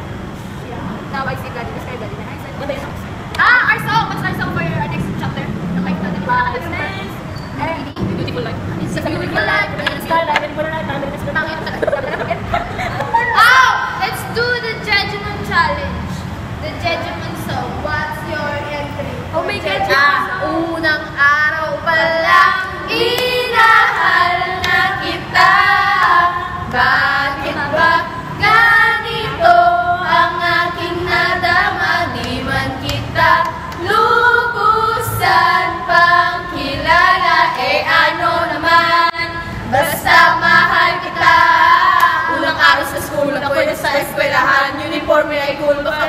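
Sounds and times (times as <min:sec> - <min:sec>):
women singing together: 0:19.4 - 0:46.0.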